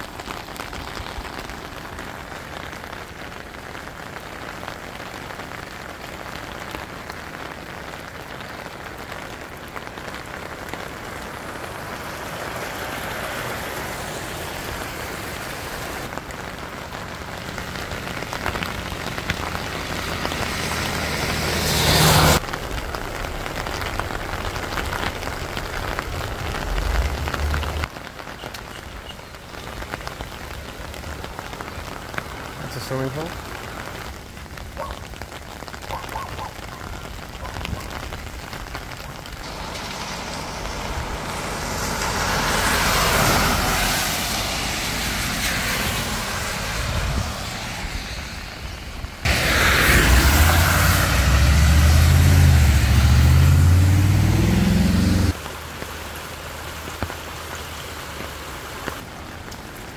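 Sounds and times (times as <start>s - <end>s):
heavy rain on road: 0.0s - 59.9s
rush with low hum: 39.4s - 55.4s.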